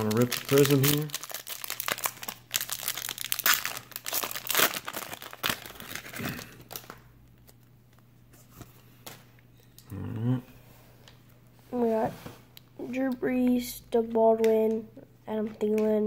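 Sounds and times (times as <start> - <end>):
foil wrapper crinkling and tearing: 0.0 - 7.7.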